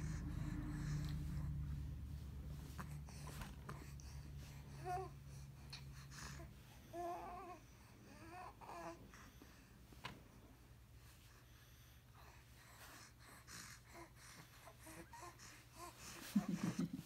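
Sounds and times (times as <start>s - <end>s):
low hum: 0.0s - 5.6s
baby cooing and babbling: 6.4s - 9.0s.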